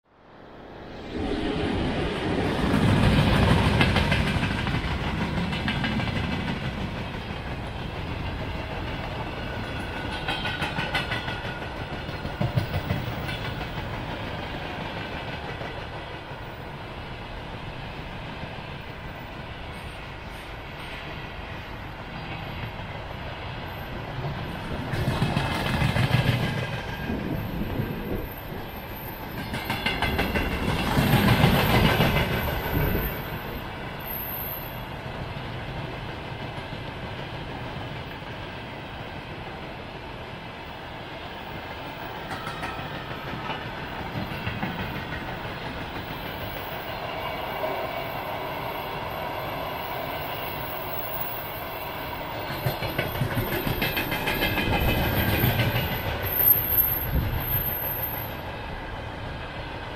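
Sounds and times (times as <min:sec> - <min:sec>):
electric locomotive passing: 0:00.1 - 0:59.9
wheels clacking over rail joints: 0:29.3 - 0:33.5, 0:52.4 - 0:58.2.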